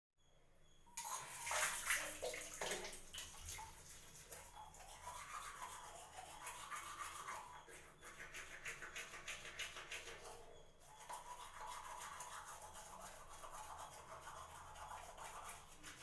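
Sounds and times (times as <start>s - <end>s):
toothbrush scrubbing teeth: 3.2s - 16.0s.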